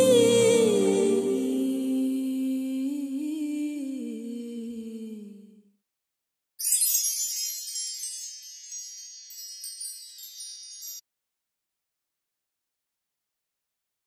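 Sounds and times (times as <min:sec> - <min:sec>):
hummed vocal note: 0:00.0 - 0:05.5
wind chimes ringing: 0:06.6 - 0:11.1.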